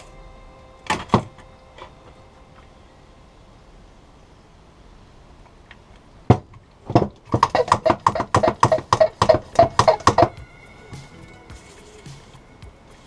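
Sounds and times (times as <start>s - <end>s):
pressure sprayer pump strokes: 7.6s - 13.0s.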